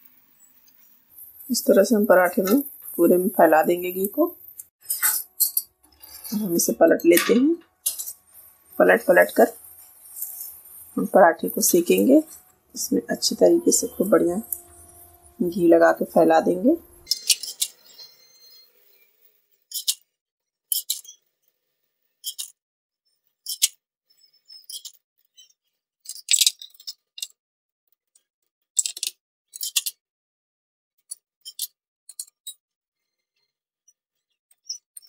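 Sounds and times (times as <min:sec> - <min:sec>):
ghee sputtering on hot pan: 0:00.6 - 0:17.6.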